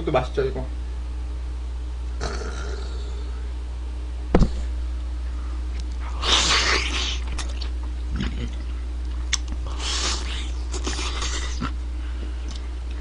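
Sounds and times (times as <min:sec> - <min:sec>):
steady low hum: 0:00.0 - 0:13.0
wet mouth clicks: 0:05.8 - 0:11.7
slurp: 0:06.0 - 0:08.7
man eating chicken: 0:06.0 - 0:11.8.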